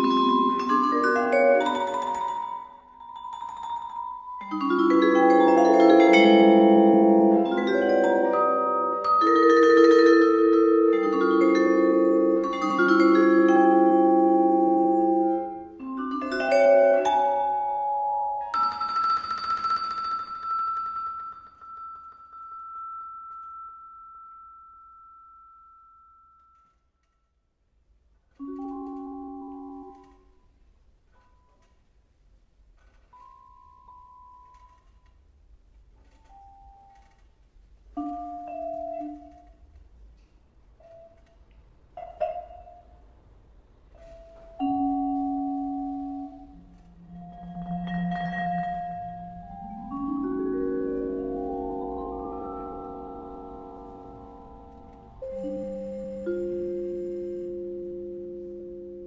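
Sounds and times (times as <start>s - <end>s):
vibraphone notes ringing: 0.0s - 26.6s, 44.0s - 59.0s.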